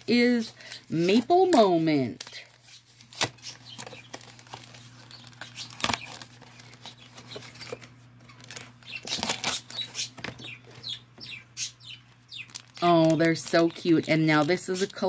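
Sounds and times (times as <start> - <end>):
packaging tearing and crinkling: 2.2 - 10.2, 12.4 - 13.8.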